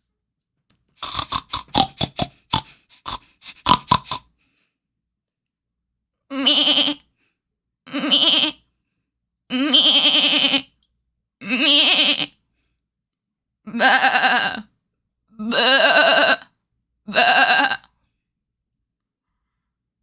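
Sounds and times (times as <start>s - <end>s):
woman imitating goat bleats: 6.3s - 7.0s, 7.9s - 8.6s, 9.5s - 10.7s, 11.4s - 12.4s, 13.7s - 14.7s, 15.4s - 16.5s, 17.1s - 17.9s.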